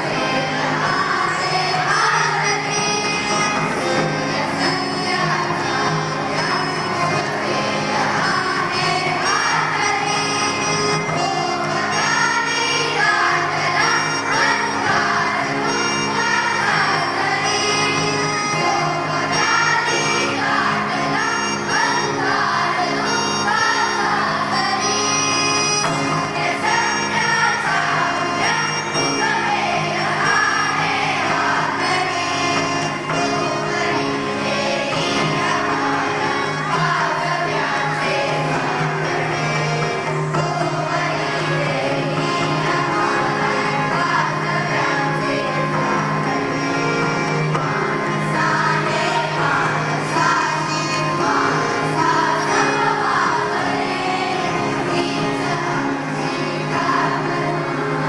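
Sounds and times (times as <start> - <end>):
children's choir singing: 0.0 - 58.0
tabla: 31.2 - 52.8.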